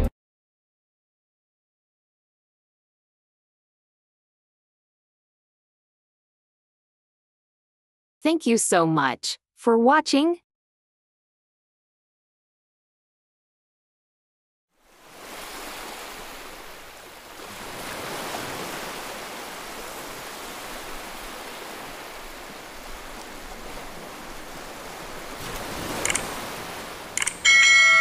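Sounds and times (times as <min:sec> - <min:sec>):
ocean surf on a beach: 0:14.8 - 0:28.0.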